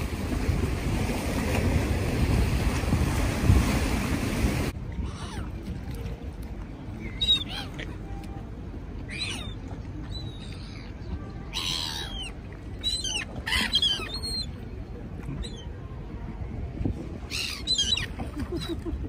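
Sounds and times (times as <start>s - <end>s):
gulls calling: 4.9s - 6.2s, 6.8s - 15.8s, 17.2s - 19.0s.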